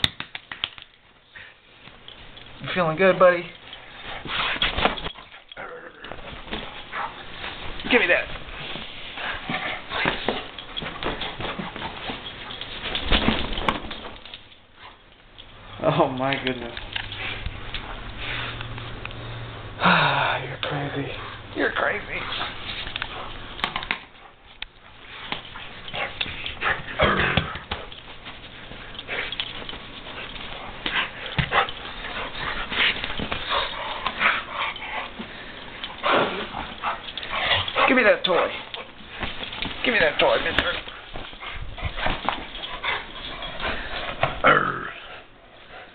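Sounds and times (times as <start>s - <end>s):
dog noises: 20.8s - 45.9s.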